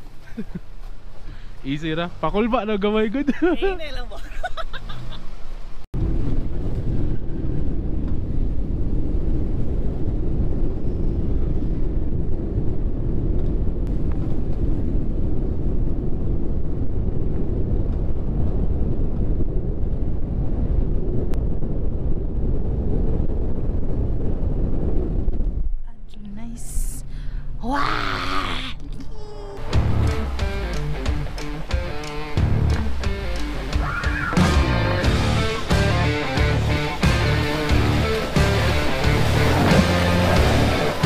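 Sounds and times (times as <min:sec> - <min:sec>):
wind buffeting microphone: 0:05.3 - 0:28.1
truck engine rumble: 0:28.8 - 0:41.0.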